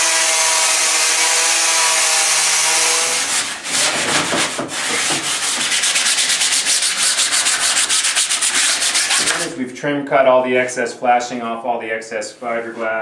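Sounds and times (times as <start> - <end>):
angle grinder whining on steel: 0.0 - 3.3
sanding block rubbing: 0.0 - 9.5.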